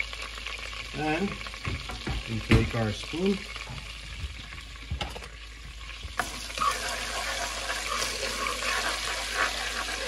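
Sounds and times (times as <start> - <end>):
food sizzling in butter: 0.0 - 10.0
spoon stirring in pot: 6.5 - 10.0.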